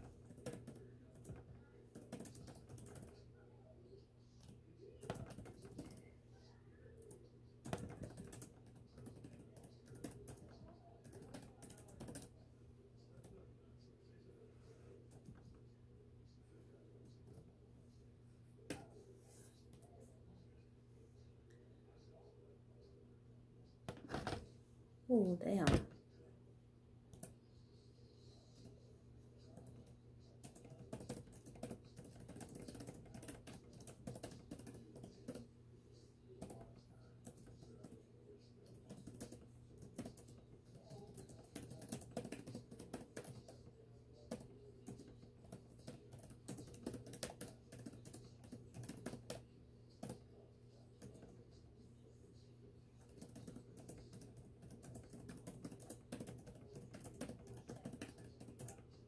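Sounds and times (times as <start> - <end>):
laptop keyboard typing: 0.0 - 6.1, 6.9 - 12.4, 27.1 - 27.4, 28.3 - 51.5, 53.0 - 59.0.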